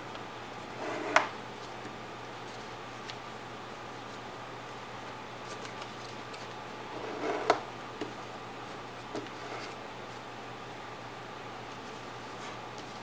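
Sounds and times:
paper rustling: 5.4 - 6.6.

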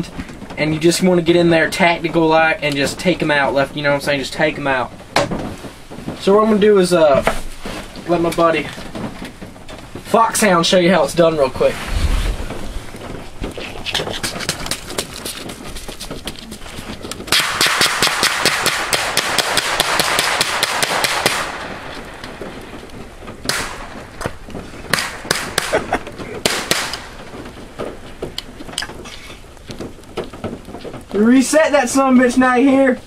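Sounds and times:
single gunshots: 17.3 - 21.9, 23.5 - 24.0, 26.4 - 27.1
rapid gunshots: 17.3 - 22.5, 24.9 - 25.8, 26.4 - 27.2.

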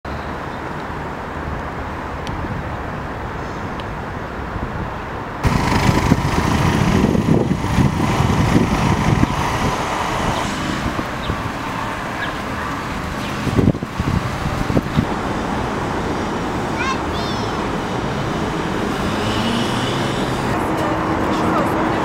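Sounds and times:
road traffic noise: 0.0 - 22.0
wind rumbling on microphone: 0.4 - 16.8.

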